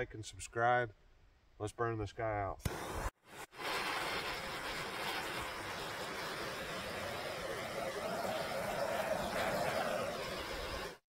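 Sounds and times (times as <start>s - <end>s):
gas torch hissing: 2.7s - 11.0s.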